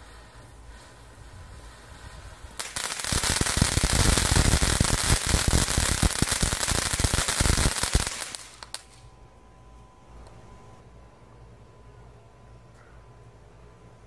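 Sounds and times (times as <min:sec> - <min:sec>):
firework fountain hissing and crackling: 0:00.0 - 0:09.0.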